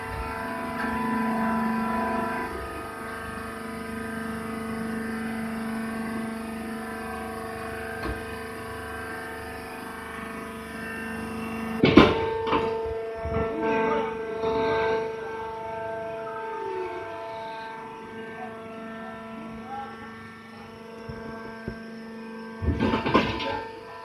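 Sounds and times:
baling machine humming: 0.0s - 24.0s
loud sharp metal clank: 22.6s - 23.7s.

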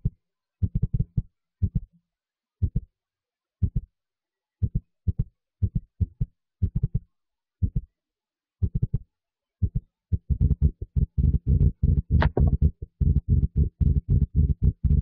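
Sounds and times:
deep heartbeat-like thumps: 2.6s - 2.9s, 3.6s - 3.9s, 4.6s - 7.0s, 7.6s - 7.9s, 8.6s - 9.0s, 9.6s - 15.0s.

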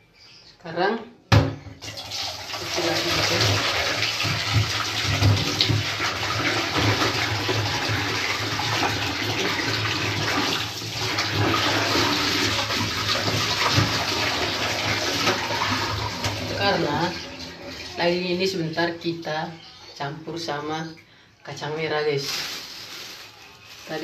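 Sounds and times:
water pouring into a pot: 1.8s - 17.8s.

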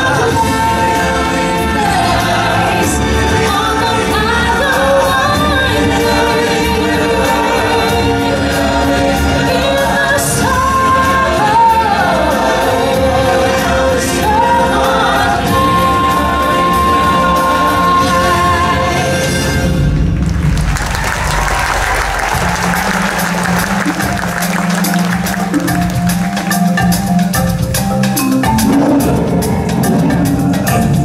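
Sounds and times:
singers and choir: 0.0s - 20.1s, 28.4s - 31.0s
show music backing track: 0.0s - 31.0s.

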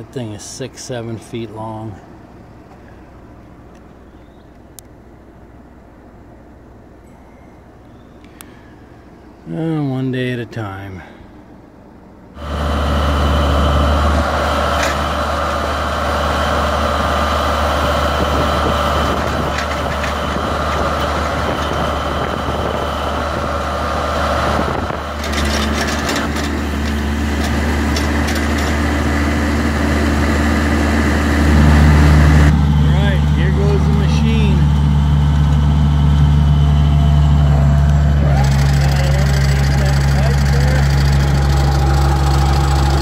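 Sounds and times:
trencher engine running: 12.3s - 43.0s
backhoe digging: 12.4s - 43.0s.

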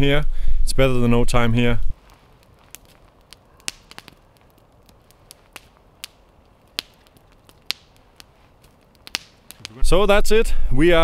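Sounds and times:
campfire crackling and popping: 1.9s - 10.3s.

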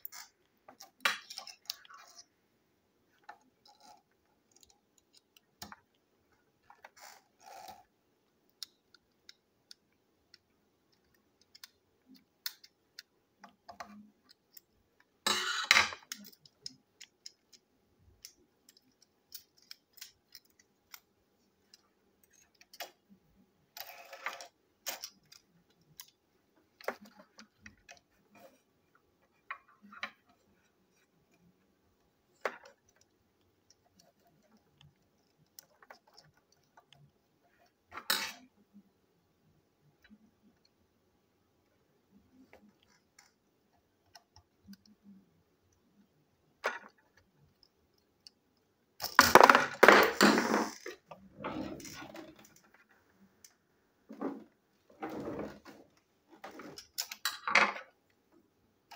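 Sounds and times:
screwdriver and plastic parts clicking: 6.6s - 26.2s
plastic parts clattering: 49.0s - 52.9s.

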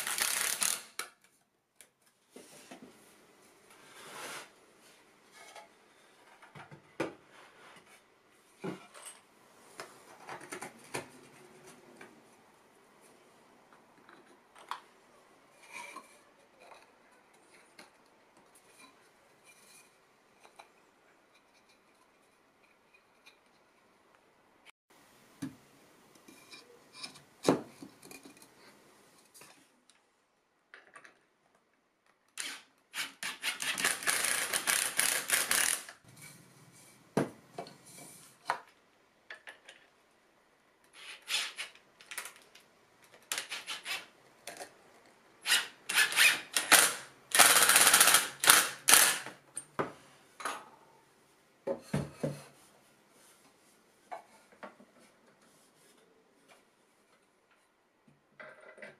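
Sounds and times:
cordless drill driving screws: 32.4s - 35.9s, 45.4s - 49.3s.

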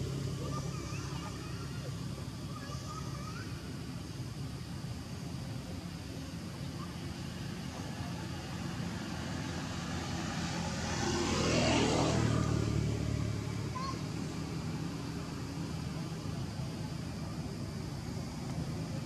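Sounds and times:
vehicle passing by: 7.2s - 17.5s.

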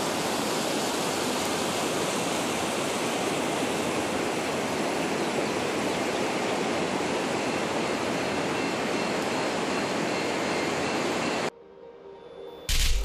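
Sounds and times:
floodwater rushing: 0.0s - 10.1s.

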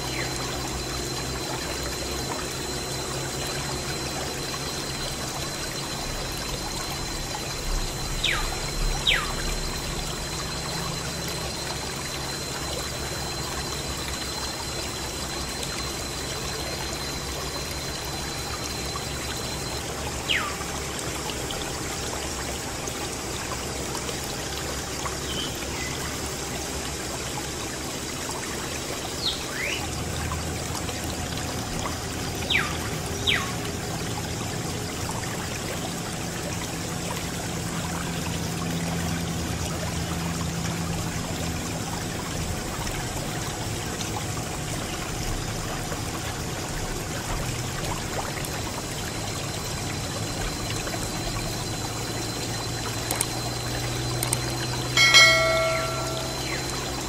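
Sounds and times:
water splashing and trickling: 0.0s - 57.0s
low hum: 50.1s - 57.0s
high plinks: 52.9s - 57.0s.

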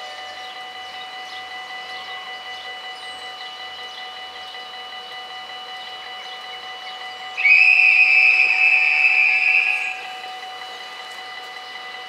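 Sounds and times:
level crossing bells ringing: 0.0s - 12.0s
high whistle blast: 7.3s - 10.4s.

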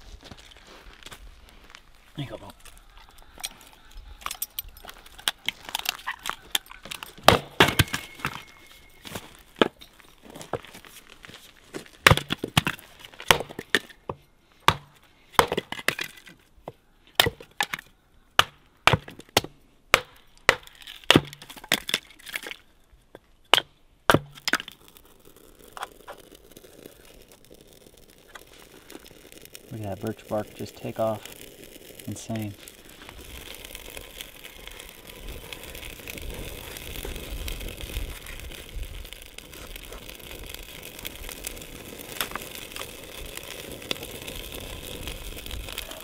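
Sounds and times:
hatchet chopping wood: 12.0s - 13.6s, 14.6s - 16.0s, 17.2s - 17.8s, 18.4s - 21.4s, 23.5s - 24.5s.

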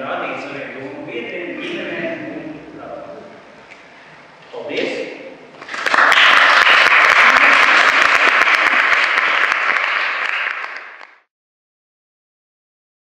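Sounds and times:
audience applauding: 5.6s - 11.3s.

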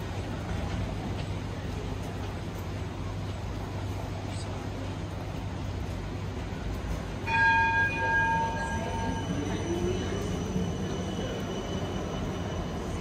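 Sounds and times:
tram motor whine rising: 6.3s - 13.0s
high tram bell tone: 7.2s - 13.0s.

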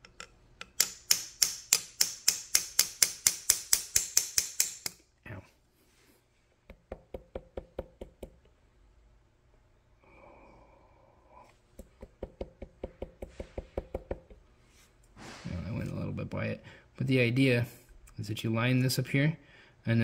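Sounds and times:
sharp metallic clicks: 0.0s - 5.0s.

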